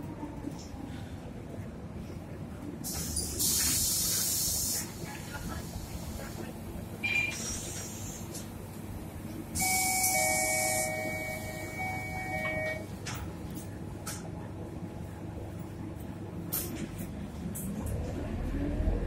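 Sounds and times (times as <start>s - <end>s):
door pneumatics air hiss: 2.8s - 5.0s, 7.3s - 8.4s
two-tone door warning buzzer: 9.6s - 12.8s.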